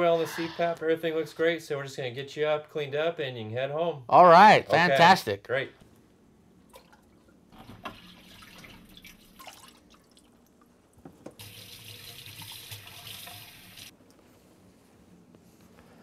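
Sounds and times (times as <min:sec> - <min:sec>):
tap water running into sink: 0:07.6 - 0:09.8, 0:11.2 - 0:13.9.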